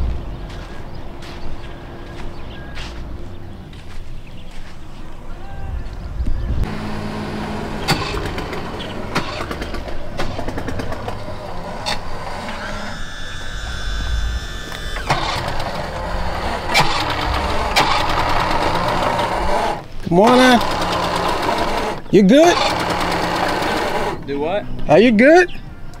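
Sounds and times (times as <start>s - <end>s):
truck engine rumbling: 0.0s - 5.3s, 6.1s - 24.9s
steady high whine: 6.2s - 24.9s.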